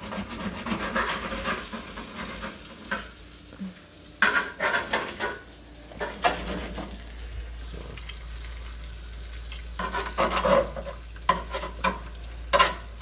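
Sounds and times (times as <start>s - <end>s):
meat sizzling in a skillet: 1.1s - 5.6s, 8.2s - 13.0s
metal tongs scraping pan: 4.2s - 5.4s, 9.8s - 12.9s.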